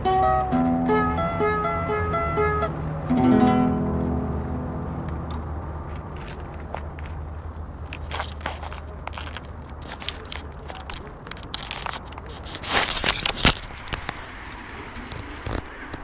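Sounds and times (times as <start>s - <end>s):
dry brush crackling and scraping: 5.8s - 16.0s.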